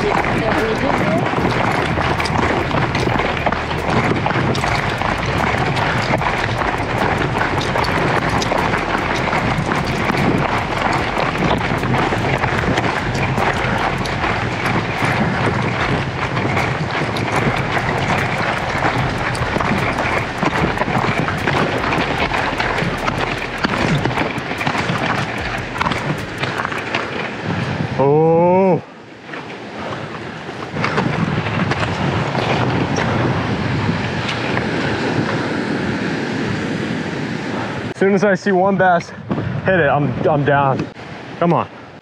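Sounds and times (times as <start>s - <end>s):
running footfalls: 0.0s - 27.8s
wind on microphone: 0.0s - 42.0s.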